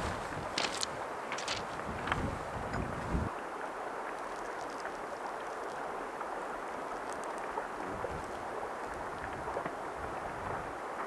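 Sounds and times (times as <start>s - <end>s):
wind buffeting microphone: 0.0s - 3.4s, 7.6s - 10.9s.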